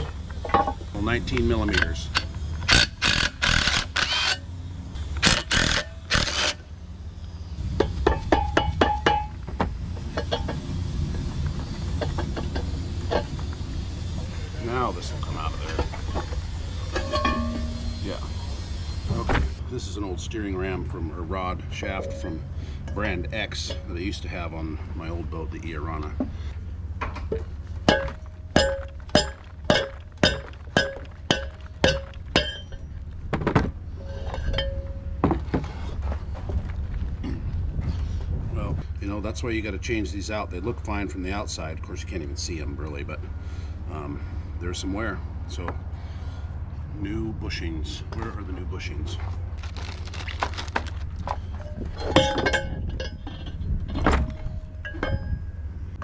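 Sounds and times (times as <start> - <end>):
metal parts clanking: 0.0 - 4.4, 5.2 - 6.6, 14.5 - 18.3, 21.8 - 24.3, 27.0 - 35.9, 49.6 - 55.7
steady low rumble: 0.0 - 56.0
mallet striking metal rod: 27.9 - 32.8.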